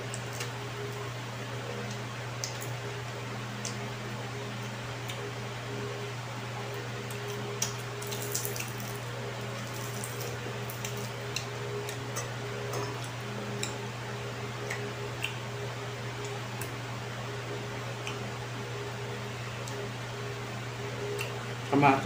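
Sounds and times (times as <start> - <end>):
person chewing with lip smacks: 14.6 - 15.4, 21.2 - 21.4.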